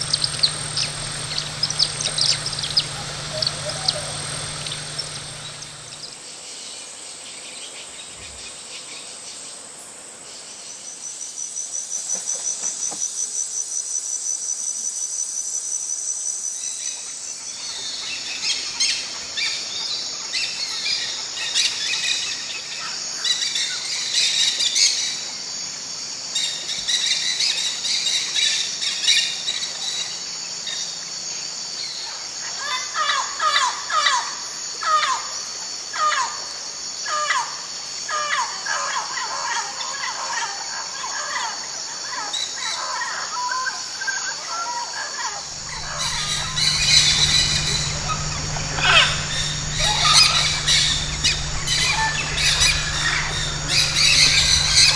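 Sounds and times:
birds chattering: 0.0 - 6.1, 45.5 - 54.9
parakeets sharp calls: 0.0 - 6.1, 45.5 - 54.9
fast pulsing insect buzz: 0.0 - 6.2, 45.5 - 54.9
insects trilling: 0.0 - 6.2, 45.2 - 54.9.

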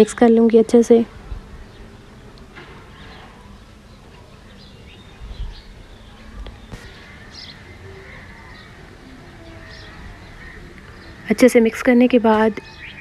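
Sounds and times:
birds chirping faintly: 0.0 - 13.0.

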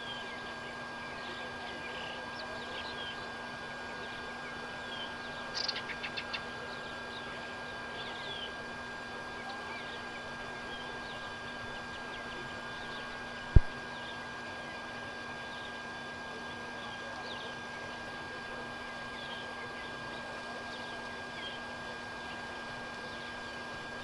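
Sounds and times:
faint hum: 0.0 - 24.0
birds chirping: 4.0 - 8.6, 9.3 - 15.8.

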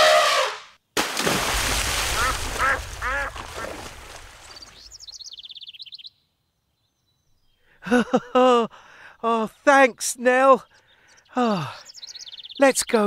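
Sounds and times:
big splash into water: 1.0 - 4.9
duck quacking: 2.2 - 3.8
high bird chirps: 4.4 - 6.2, 10.6 - 13.0.

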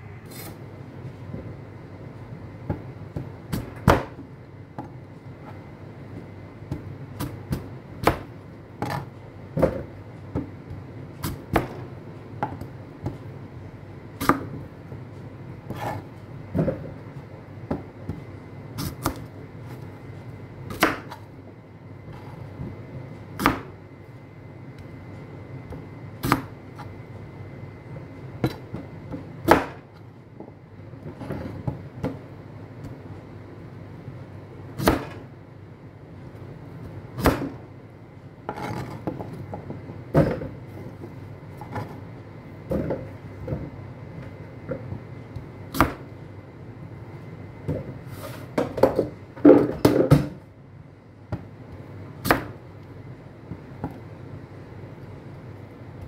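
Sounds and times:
knife chopping on cutting board: 20.7 - 21.2, 23.4 - 23.7, 26.2 - 26.5, 28.4 - 29.8, 34.8 - 35.2, 37.2 - 37.6, 44.7 - 46.1, 52.2 - 52.6.

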